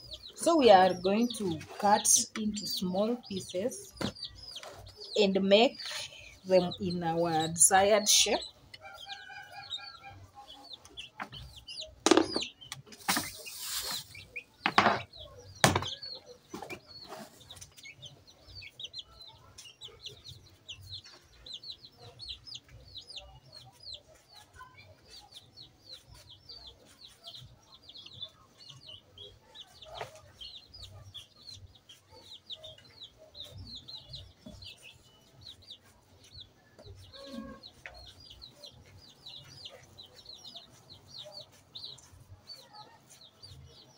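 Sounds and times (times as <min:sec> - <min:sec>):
chickens clucking and peeping: 0:00.0 - 0:43.9
loud knocks: 0:12.0 - 0:12.5, 0:14.6 - 0:16.0.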